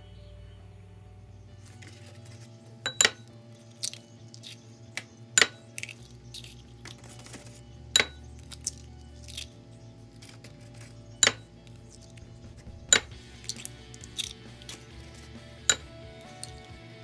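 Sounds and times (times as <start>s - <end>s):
soft background music: 0.0s - 17.0s
eggs clinking on glass bowl: 2.9s - 4.6s, 5.4s - 7.1s, 8.0s - 9.4s.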